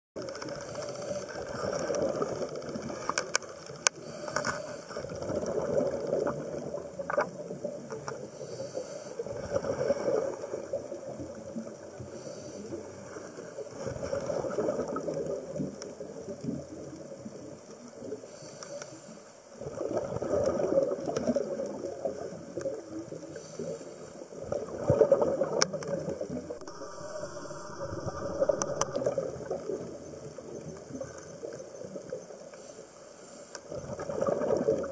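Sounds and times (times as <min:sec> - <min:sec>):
hissing regulator inhale: 0:00.6 - 0:01.7, 0:04.0 - 0:05.1, 0:08.3 - 0:10.2, 0:12.0 - 0:13.7, 0:18.3 - 0:19.4, 0:23.2 - 0:24.4, 0:26.6 - 0:29.6, 0:32.5 - 0:33.7
exhaled bubbles rushing: 0:05.1 - 0:07.8, 0:13.8 - 0:15.7, 0:19.6 - 0:23.2, 0:24.4 - 0:32.0, 0:33.7 - 0:34.9
sharp clicks: 0:26.6 - 0:29.2.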